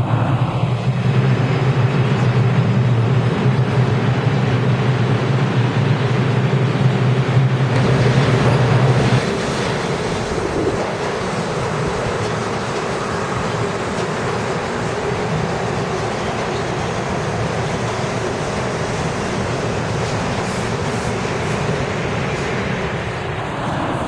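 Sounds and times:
subway train rolling past: 0:00.0 - 0:24.0
subway train rumbling: 0:00.0 - 0:24.0.

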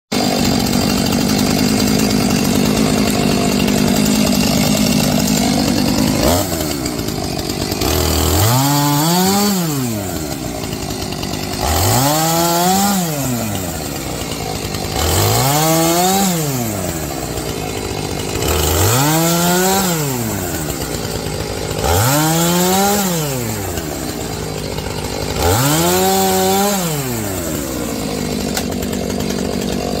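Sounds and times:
chainsaw idling and revving: 0:00.1 - 0:30.0.

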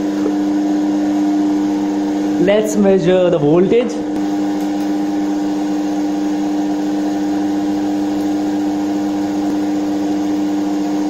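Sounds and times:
electric motors humming: 0:00.0 - 0:11.0.

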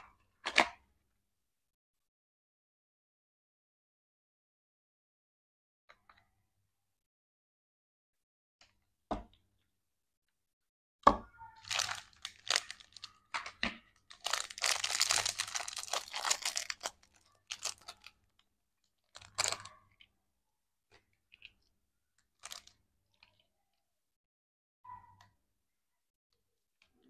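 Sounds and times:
plastic bag crinkling and tearing: 0:11.6 - 0:13.4, 0:14.0 - 0:18.2, 0:19.0 - 0:19.7, 0:22.4 - 0:22.7.

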